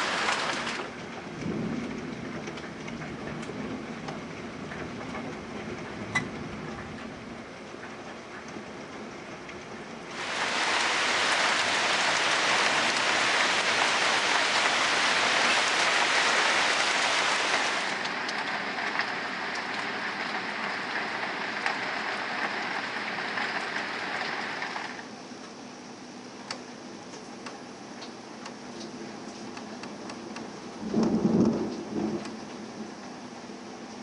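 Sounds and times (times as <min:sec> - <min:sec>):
heavy rain pouring: 0:00.0 - 0:25.1, 0:30.0 - 0:34.0.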